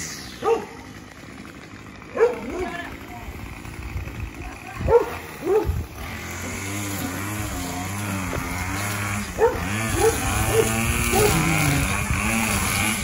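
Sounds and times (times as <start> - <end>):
string trimmer running: 0.0 - 13.0
dog barking: 0.4 - 0.8, 2.1 - 2.8, 4.8 - 5.8, 9.4 - 11.4.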